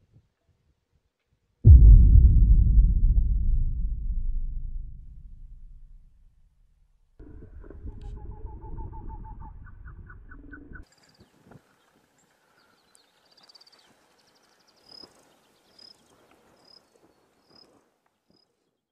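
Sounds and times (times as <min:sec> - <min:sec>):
low rumble with pulsing notes: 0:01.7 - 0:06.3.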